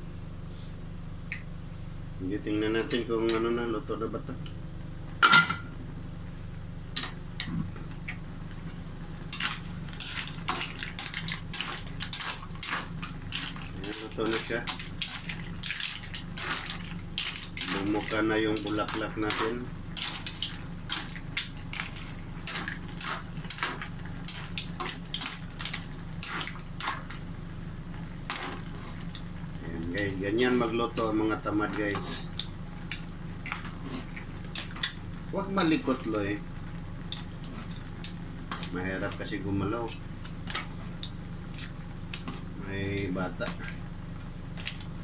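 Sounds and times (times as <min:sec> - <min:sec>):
mussel shells clattering in pot: 0:09.3 - 0:27.2.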